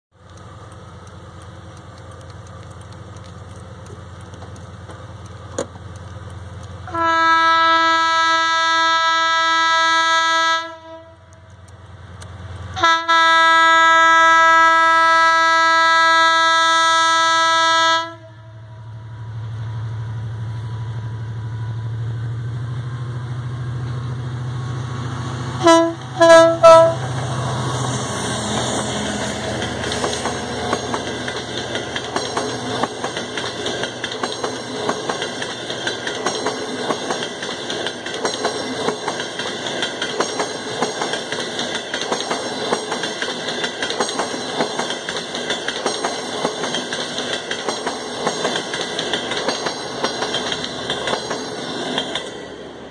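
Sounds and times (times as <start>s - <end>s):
diesel engine rumble: 0.1s - 7.0s
train coaches rattling: 0.2s - 8.6s, 23.1s - 52.9s
locomotive horn blasts: 6.9s - 11.3s, 12.8s - 18.6s, 25.6s - 27.1s.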